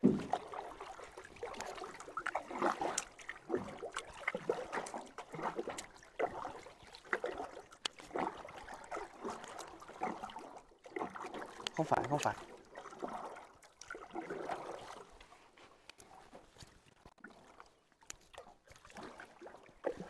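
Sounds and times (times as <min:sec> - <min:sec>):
stream water splashing: 0:00.0 - 0:20.0.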